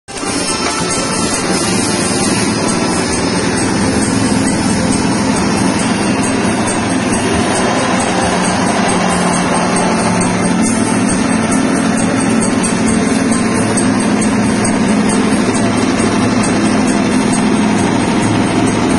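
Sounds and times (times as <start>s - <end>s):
small petrol engine running: 0.1s - 18.9s.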